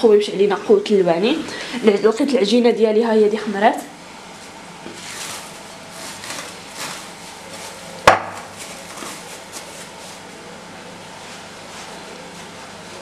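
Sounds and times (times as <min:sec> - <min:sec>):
cling film rustling and crinkling: 0:04.4 - 0:10.3
sharp knock: 0:08.1 - 0:08.5.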